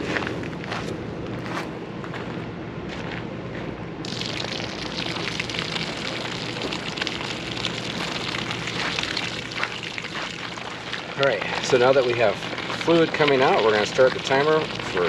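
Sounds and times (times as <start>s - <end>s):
water gushing from hose: 4.0s - 15.0s.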